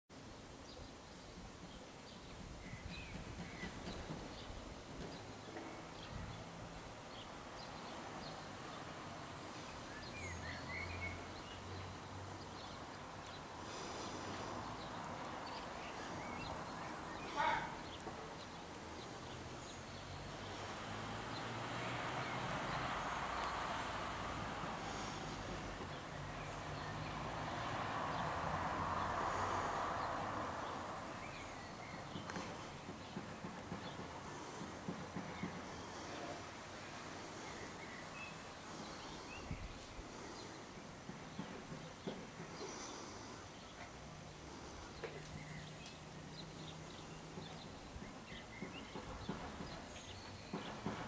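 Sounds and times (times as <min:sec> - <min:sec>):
soft outdoor hush: 0:00.1 - 0:51.0
distant rushing hum: 0:03.4 - 0:51.0.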